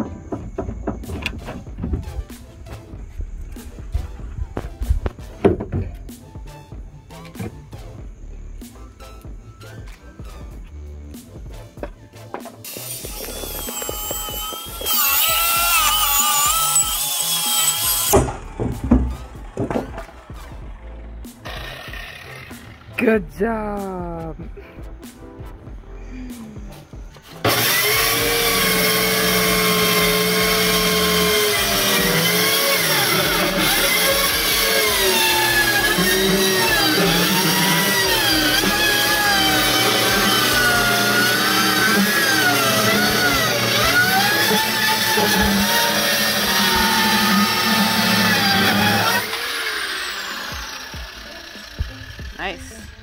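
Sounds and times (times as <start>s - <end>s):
circular saw cutting wood: 12.3s - 23.2s, 26.8s - 53.0s.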